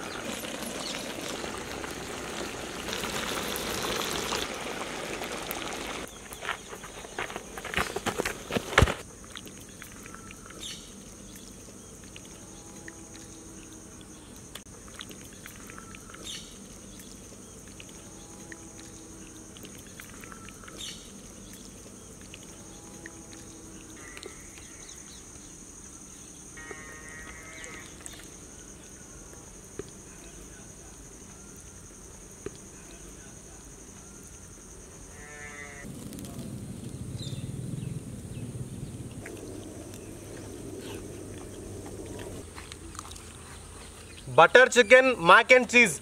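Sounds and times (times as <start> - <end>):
high-pitched insect drone: 22.5 - 35.9
faint animal calls: 26.6 - 28.3
low hum: 35.9 - 44.1.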